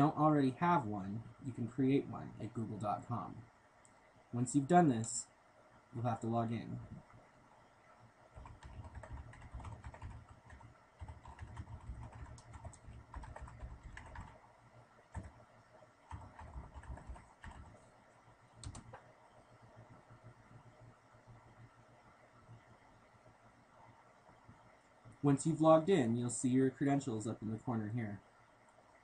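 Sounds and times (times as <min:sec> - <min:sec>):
keyboard typing: 0:08.4 - 0:14.4, 0:15.1 - 0:15.4, 0:16.0 - 0:17.8, 0:18.6 - 0:19.1.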